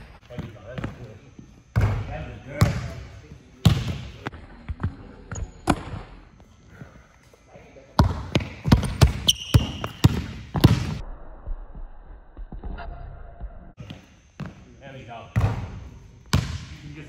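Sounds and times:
basketball bouncing on wooden floor: 8.0s - 11.0s, 16.3s - 16.6s.

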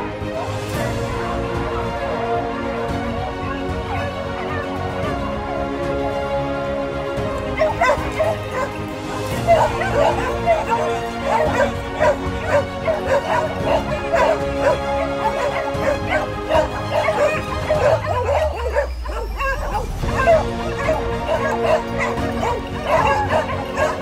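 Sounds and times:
background music: 0.0s - 24.0s
dogs barking and yelping: 3.2s - 5.2s, 7.3s - 24.0s.

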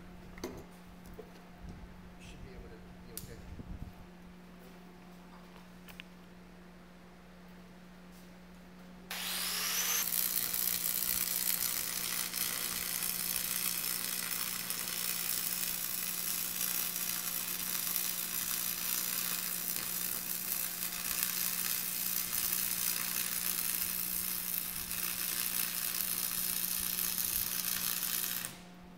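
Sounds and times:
welding arc crackling sizzle: 9.1s - 28.6s.

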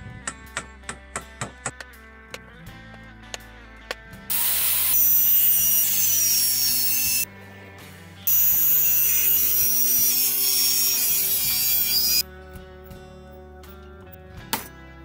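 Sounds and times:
circular saw cutting timber: 4.3s - 7.3s, 8.3s - 12.2s.

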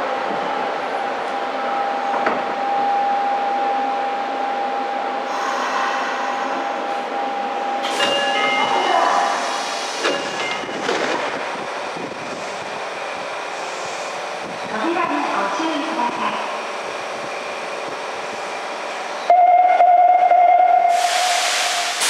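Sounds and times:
sharp hiss of doors: 20.9s - 22.0s.

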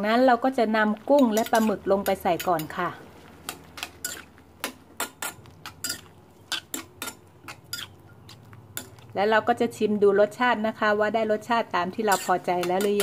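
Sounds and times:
spatula knocking and scraping wok: 1.1s - 9.1s, 11.9s - 13.0s.

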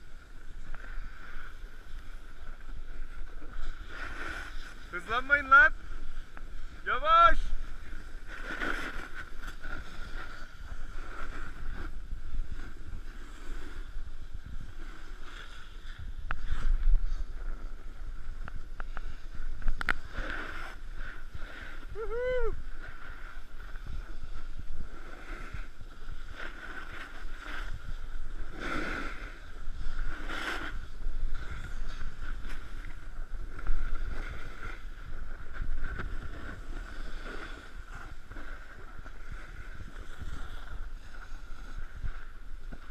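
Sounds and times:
snowboard carving packed snow: 0.0s - 42.9s
wind rushing over microphone: 0.0s - 42.9s.

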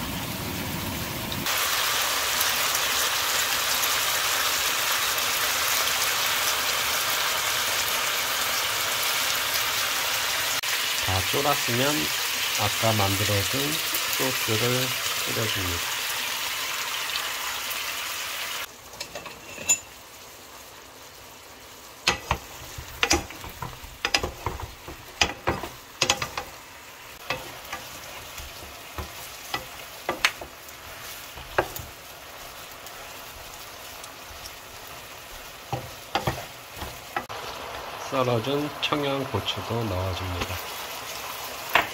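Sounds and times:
chicken sizzling in a frying pan: 0.0s - 41.9s
wooden spoon scraping a pan: 22.1s - 26.5s, 27.2s - 33.6s.

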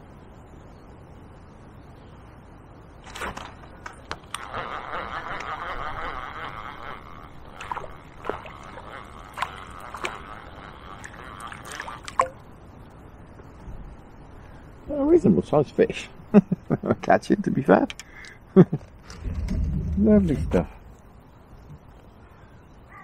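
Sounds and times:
water splashing and sloshing: 6.4s - 12.5s, 19.0s - 21.8s.

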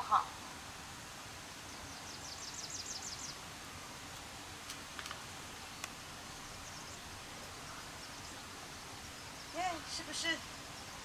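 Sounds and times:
bird calls: 1.6s - 3.5s, 5.6s - 11.0s
faint bird trill: 1.7s - 3.4s.

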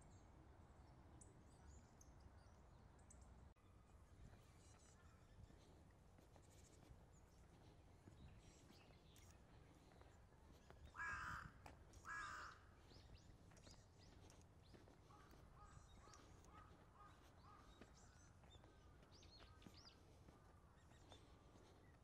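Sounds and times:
small birds chirping faintly: 0.0s - 22.0s
crow cawing: 10.9s - 12.7s.

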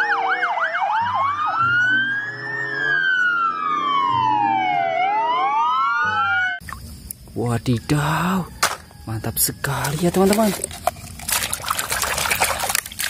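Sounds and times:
police sirens wailing: 0.0s - 6.6s
engines humming: 0.0s - 11.2s.

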